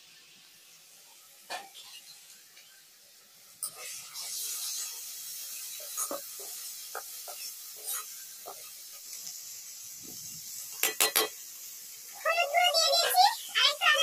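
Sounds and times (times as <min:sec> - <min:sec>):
onions sizzling in a wok: 0:00.0 - 0:14.0
metal spatula scraping a pan: 0:03.6 - 0:08.8.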